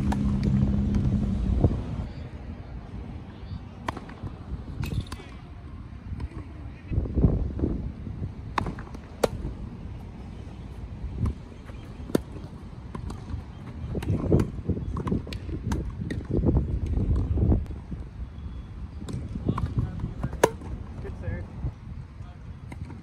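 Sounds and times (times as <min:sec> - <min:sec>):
racquets striking tennis ball: 0:00.0 - 0:01.2, 0:03.8 - 0:05.4, 0:08.5 - 0:09.6, 0:11.1 - 0:17.3, 0:19.0 - 0:20.8.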